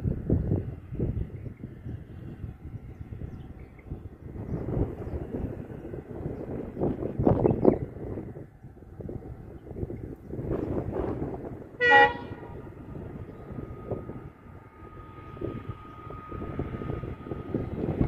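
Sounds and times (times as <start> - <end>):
train rumbling: 0.0 - 18.0
locomotive horn blast: 11.7 - 13.0.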